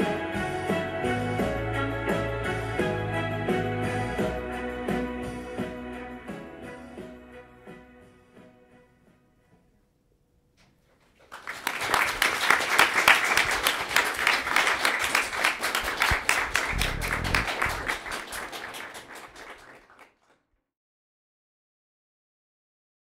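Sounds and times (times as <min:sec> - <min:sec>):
audience applause: 0:11.2 - 0:20.4.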